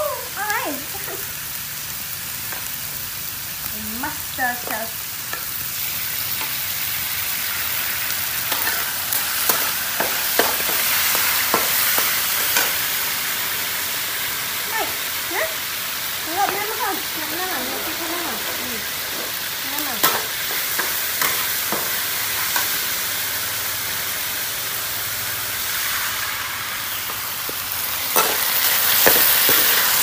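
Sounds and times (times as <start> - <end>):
food sizzling in a wok: 0.0 - 30.0
metal spatula scraping wok: 7.7 - 13.0, 17.8 - 22.9, 27.8 - 30.0.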